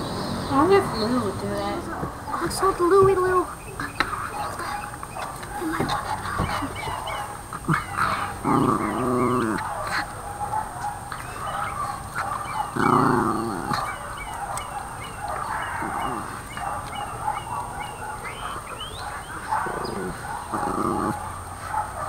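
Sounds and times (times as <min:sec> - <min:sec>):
puppy drawn-out vocal sounds: 0:03.1 - 0:22.0
puppy chewing clicks: 0:03.5 - 0:19.8.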